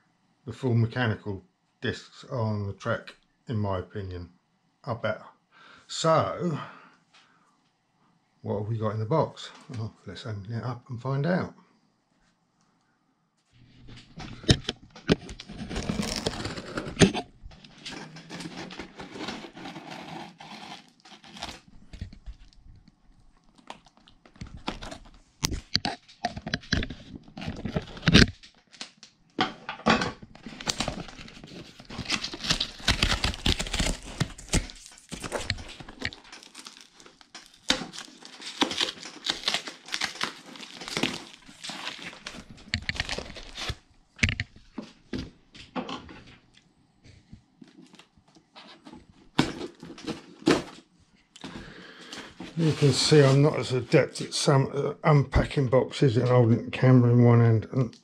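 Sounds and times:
knocks and scrapes: 13.6 - 20.9
cardboard flaps crinkling: 13.7 - 22.6, 23.5 - 29.0, 30.3 - 43.8
packing tape tearing: 15.3 - 21.7, 30.4 - 44.4.

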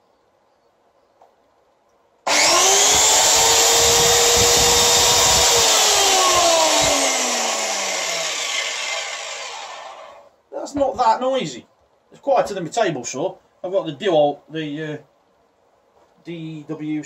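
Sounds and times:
plunge saw motor whining: 2.3 - 10.3.

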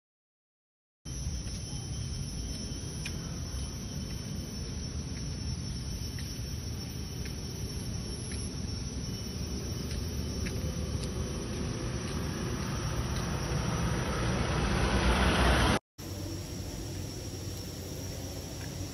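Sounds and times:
faint ticks: 2.5 - 4.4, 6.1 - 8.6, 9.8 - 13.3
low rumbling noise: 7.9 - 18.9.

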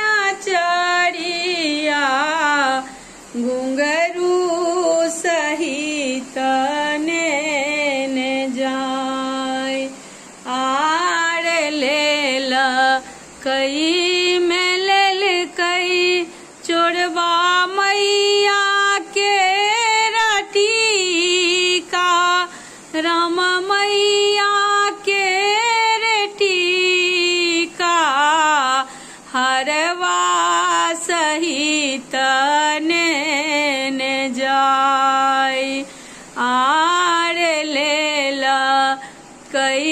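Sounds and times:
woman singing solo: 0.0 - 39.9.

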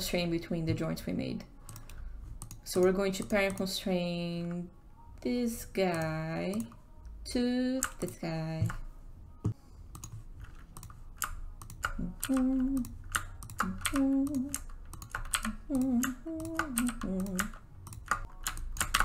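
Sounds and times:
keyboard and mouse clicking: 1.7 - 3.7, 5.8 - 6.8, 7.8 - 8.8, 9.9 - 19.0
person humming a tune: 11.9 - 14.7, 15.4 - 17.6.

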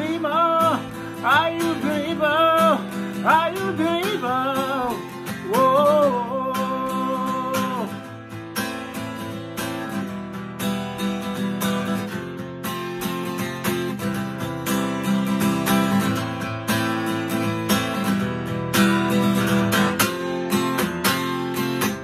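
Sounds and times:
man singing: 0.0 - 8.2
acoustic guitar strumming: 0.0 - 22.0.

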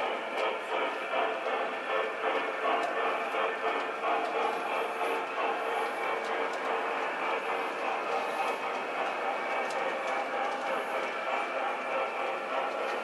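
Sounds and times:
model train wheels rolling on rail: 0.0 - 13.0
faint clicks: 8.4 - 13.0.

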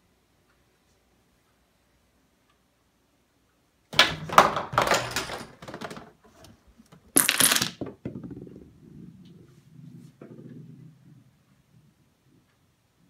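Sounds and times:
dominoes toppling onto remote: 4.0 - 6.1, 7.2 - 7.9
small hard parts clattering: 4.0 - 8.2.

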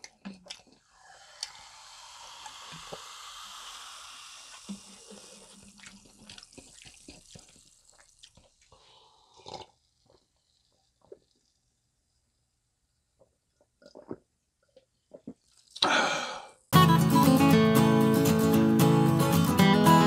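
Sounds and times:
liquid pouring hiss: 0.8 - 11.7.

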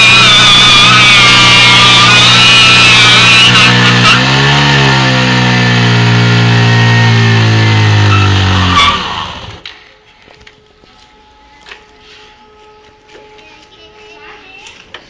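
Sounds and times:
motorcycle engine revving: 0.0 - 9.6.

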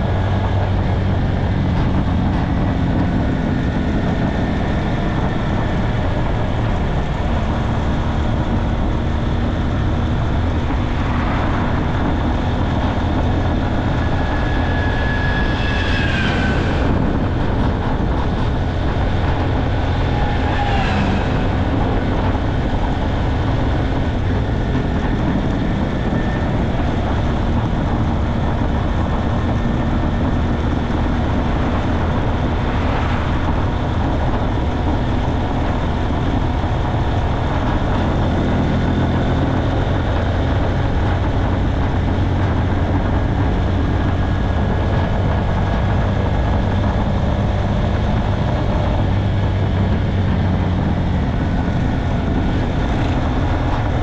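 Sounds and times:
faint whine: 0.0 - 37.9
wind rush over microphone: 0.0 - 54.0
motorcycle engine running: 16.9 - 54.0.

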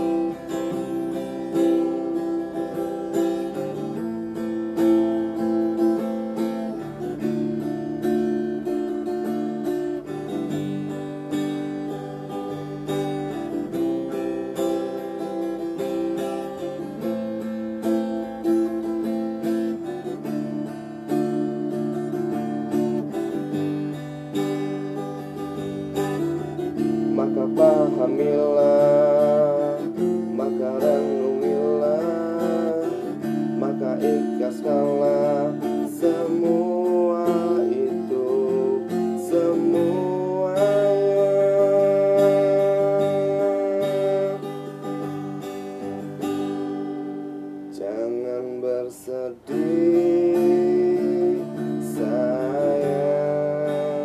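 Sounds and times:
man singing: 0.0 - 46.6, 47.7 - 54.0
acoustic guitar strumming chords: 0.0 - 54.0.

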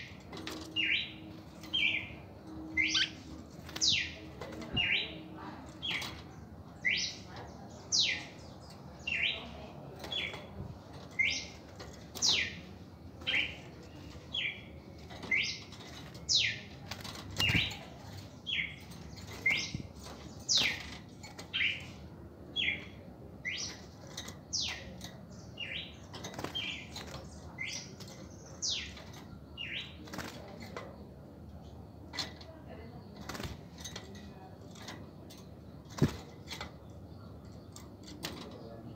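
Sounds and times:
wing flapping: 35.9 - 36.6.

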